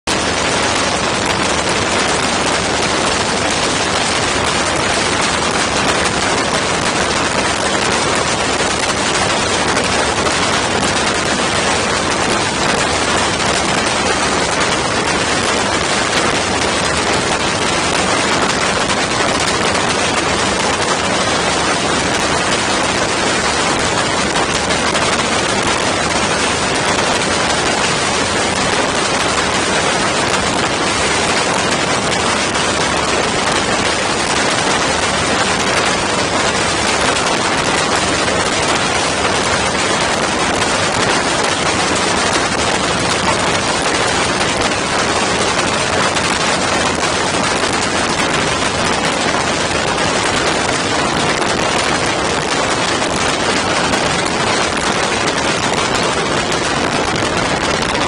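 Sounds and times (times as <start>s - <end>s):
aircraft engine and propeller drone: 0.1s - 58.0s
wind rushing on microphone: 0.1s - 58.0s.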